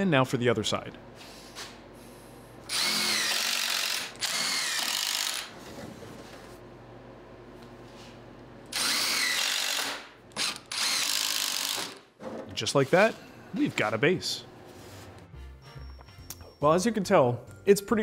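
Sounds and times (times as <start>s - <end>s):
impact driver driving screws: 2.7s - 5.5s, 8.7s - 12.0s.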